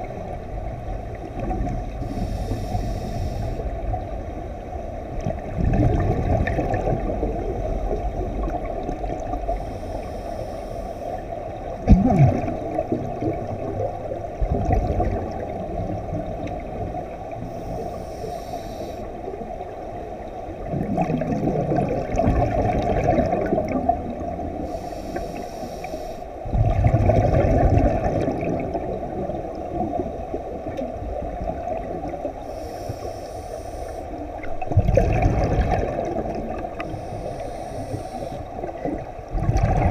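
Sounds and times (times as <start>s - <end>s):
exhaled bubbles gurgling: 0.0s - 39.9s
muffled underwater wash: 0.0s - 39.9s
regulator inhalation hiss: 2.1s - 3.7s, 9.6s - 11.2s, 17.5s - 19.2s, 24.6s - 26.4s, 32.4s - 34.2s, 36.8s - 38.6s.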